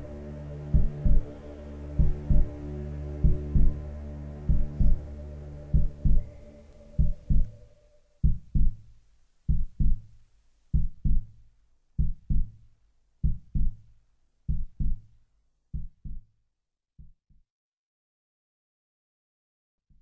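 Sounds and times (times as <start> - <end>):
slow heartbeat thumps: 0.0 - 2.6, 3.2 - 16.3
held musical tone: 0.0 - 8.2.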